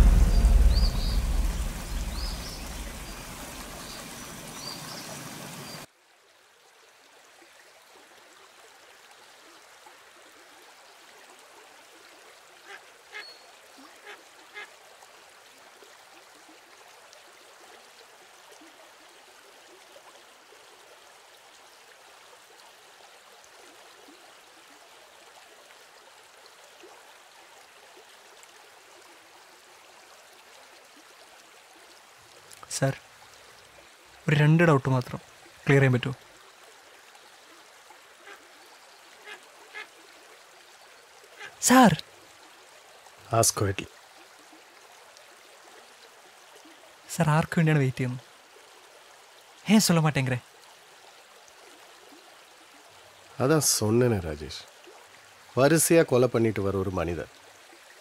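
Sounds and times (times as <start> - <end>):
deep rumbling boom: 0.0 - 3.9
steady outdoor hiss: 0.0 - 58.0.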